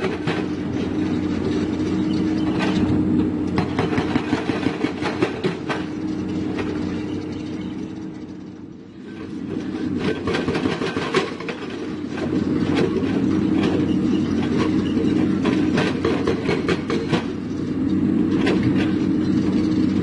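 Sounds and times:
diesel engine drone: 0:00.0 - 0:20.0
hydraulic breaker hammering rock: 0:03.5 - 0:07.1, 0:09.6 - 0:17.4.

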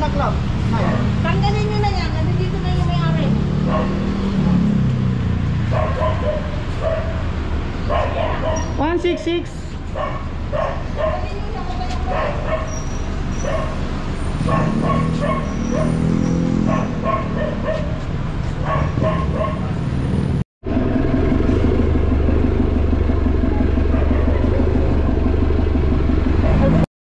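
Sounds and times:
vehicle engine running: 0:00.0 - 0:26.9
dog barking: 0:00.8 - 0:01.2, 0:03.6 - 0:04.2, 0:05.7 - 0:07.3, 0:07.9 - 0:08.9, 0:10.0 - 0:11.4, 0:12.0 - 0:13.8, 0:14.4 - 0:18.0, 0:18.6 - 0:19.8, 0:23.9 - 0:24.8.

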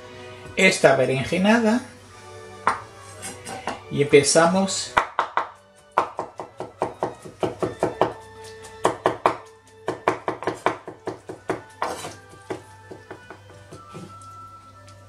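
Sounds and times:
knife chopping on wooden board: 0:02.7 - 0:03.8, 0:05.0 - 0:14.1.

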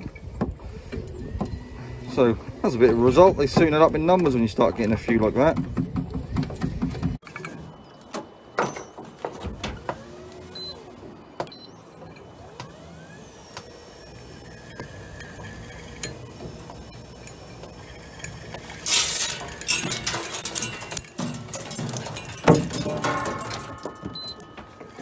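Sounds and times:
motor whines: 0:00.0 - 0:03.4, 0:09.7 - 0:20.6
jigging machine motor hum: 0:09.6 - 0:25.0.

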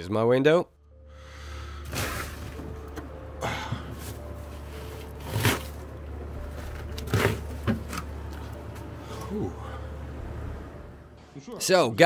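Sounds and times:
steady low hum: 0:05.8 - 0:11.2.

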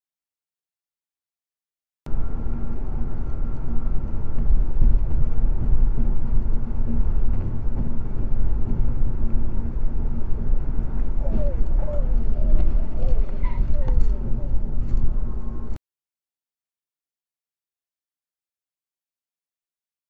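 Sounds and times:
car cruising rumble inside: 0:02.1 - 0:15.8.

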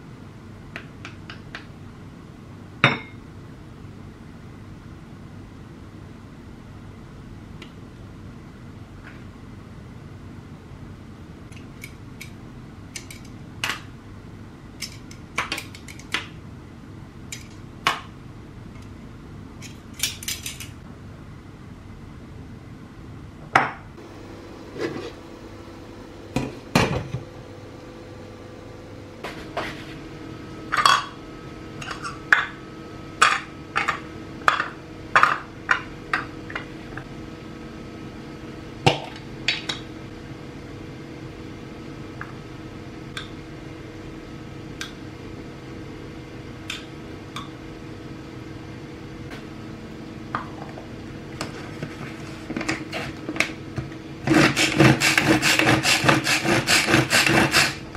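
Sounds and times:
dishes clinking and knocking: 0:02.8 - 0:03.2.

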